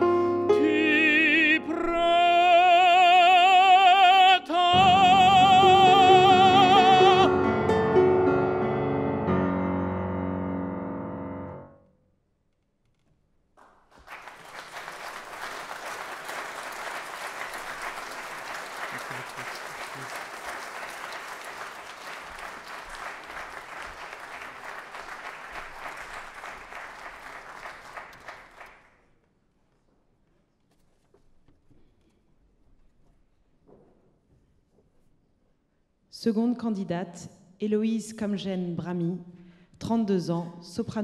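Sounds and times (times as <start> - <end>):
person singing with piano: 0.0 - 8.0
audience applauding: 13.6 - 29.0.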